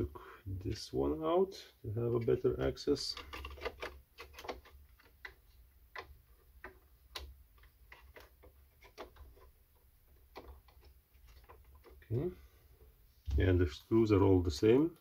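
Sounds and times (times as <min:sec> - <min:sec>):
plastic parts clicking and tapping: 0:02.1 - 0:12.2.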